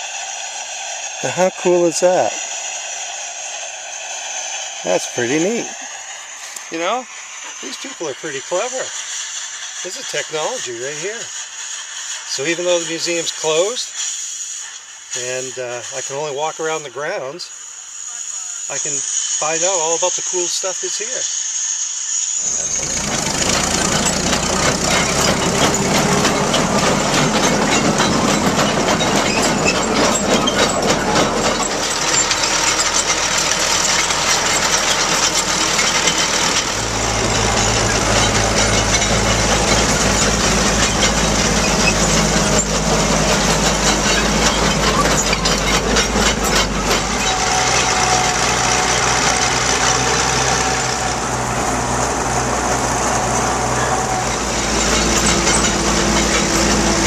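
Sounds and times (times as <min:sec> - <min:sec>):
truck engine droning: 0:00.0 - 0:57.0.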